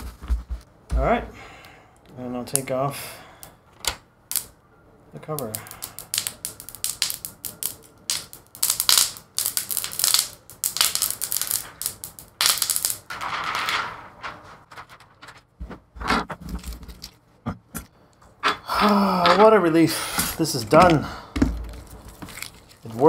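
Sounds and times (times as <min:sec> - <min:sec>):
plastic film peeling crackling: 0:05.4 - 0:13.1, 0:21.7 - 0:23.0.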